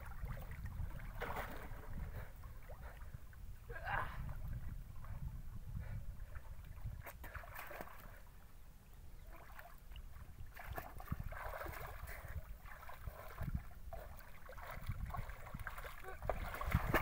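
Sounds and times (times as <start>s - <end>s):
water splashing around swimmer: 0.0s - 3.2s, 6.9s - 8.2s, 9.2s - 17.0s
steady low rumble: 0.0s - 7.4s.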